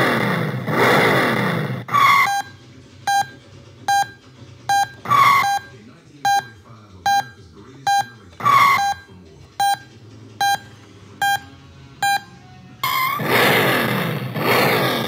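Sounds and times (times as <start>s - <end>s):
recorded engine sound effect: 0.0s - 15.0s
short electronic beeps: 2.0s - 13.2s.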